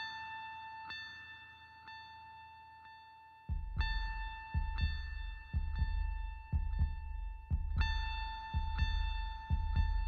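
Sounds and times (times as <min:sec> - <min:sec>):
low pulsing double beat: 0:03.5 - 0:10.0.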